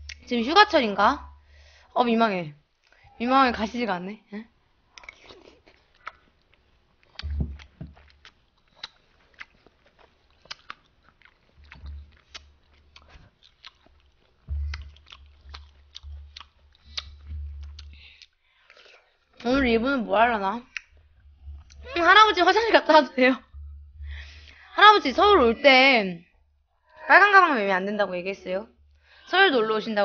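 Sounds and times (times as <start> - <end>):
person chewing fruit: 4.9 - 19.5, 20.6 - 22.1
wet mouth clicks: 5.0 - 6.3, 7.0 - 19.0, 20.7 - 21.9
dull low thuds: 7.2 - 8.0, 14.4 - 18.2, 19.4 - 25.8.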